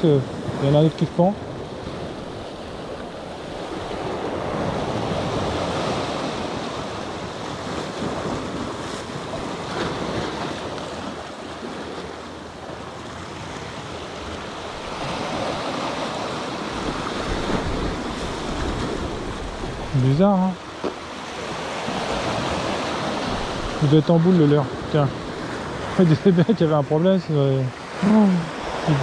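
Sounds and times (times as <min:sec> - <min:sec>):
sea waves washing ashore: 0:00.0 - 0:29.0
wind on microphone: 0:16.2 - 0:20.3.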